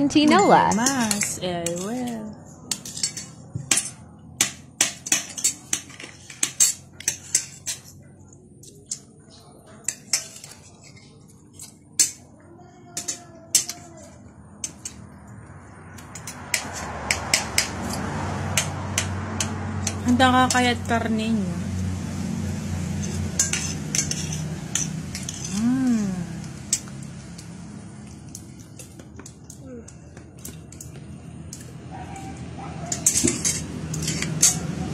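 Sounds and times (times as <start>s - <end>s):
cutlery clinking on ceramic plates: 0.2s - 8.0s, 9.7s - 12.3s, 13.0s - 13.9s, 23.0s - 25.6s, 32.8s - 34.8s.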